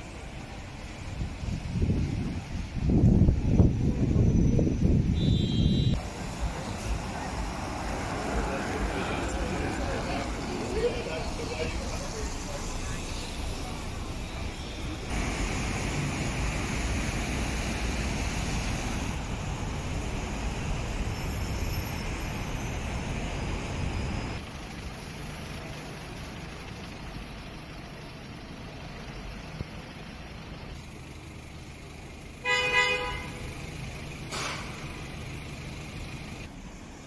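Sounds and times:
city traffic rumble: 0:00.0 - 0:37.0
short car horn toot: 0:05.2 - 0:06.0, 0:32.4 - 0:33.4.

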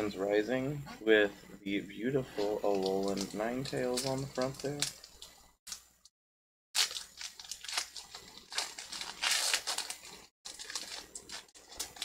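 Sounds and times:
foil wrapper crinkling: 0:02.4 - 0:05.8, 0:06.8 - 0:12.0.

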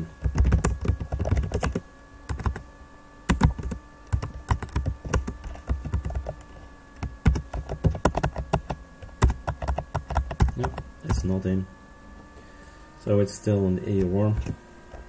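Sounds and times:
laptop keyboard typing: 0:00.0 - 0:02.7, 0:03.3 - 0:11.3
faint cooling fan hum: 0:00.0 - 0:15.0.

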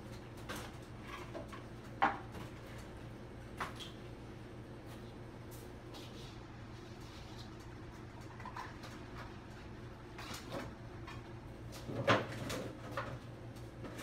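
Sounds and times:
steady low hum: 0:00.0 - 0:14.0
kitchen knocks and clatters: 0:00.4 - 0:02.9, 0:10.2 - 0:14.0.

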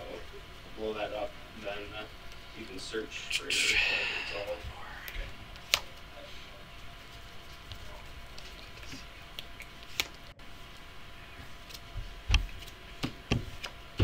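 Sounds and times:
steady low hum: 0:00.0 - 0:14.0
cards being shuffled: 0:07.0 - 0:10.2.

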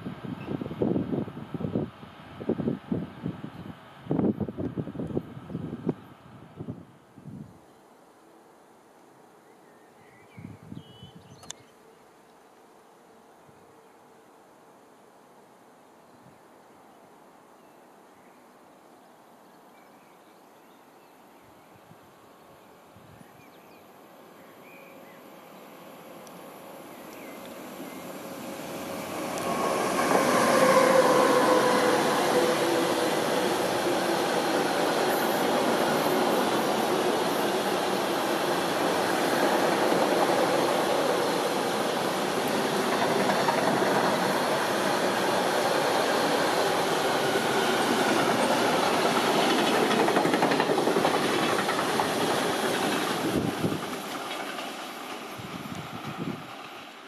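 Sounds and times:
electric locomotive whine: 0:22.4 - 0:57.0
train wheels clattering on rails: 0:29.1 - 0:57.0.

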